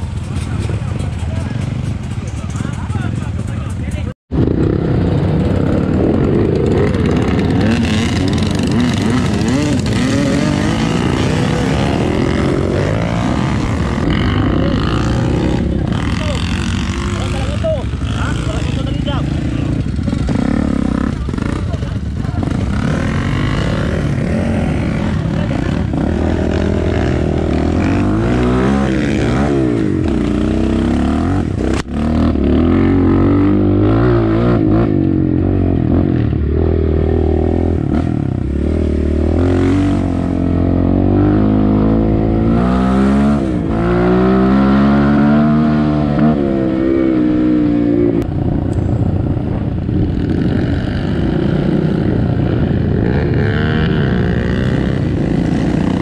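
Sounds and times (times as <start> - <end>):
dirt bike engines revving: 0.0 - 56.0.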